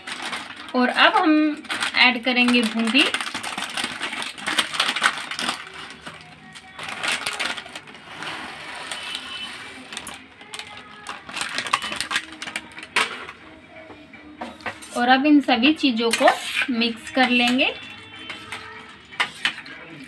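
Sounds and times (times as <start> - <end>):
fried snacks pouring into bowl: 0.0 - 12.7
plastic packet crinkling: 0.0 - 13.1.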